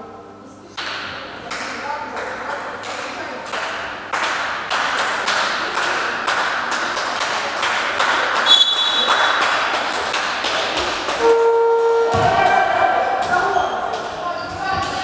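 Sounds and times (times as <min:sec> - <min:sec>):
lower steady tone: 0:11.2 - 0:12.5
high tone: 0:11.2 - 0:13.0.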